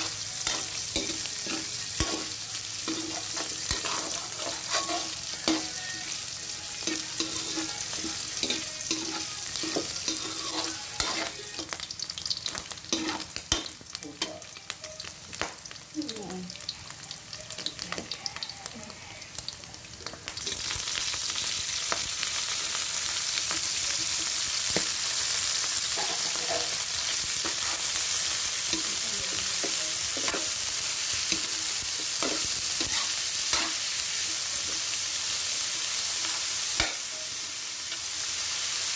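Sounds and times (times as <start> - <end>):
food sizzling in oil: 0.0 - 38.9
metal spatula scraping pan: 0.4 - 5.8, 6.8 - 11.4, 13.0 - 13.3, 25.9 - 26.8, 32.2 - 33.8.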